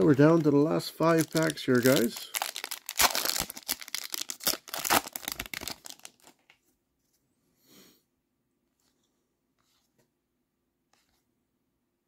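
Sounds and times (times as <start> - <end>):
foil pack crinkling and tearing: 0.2 - 6.5.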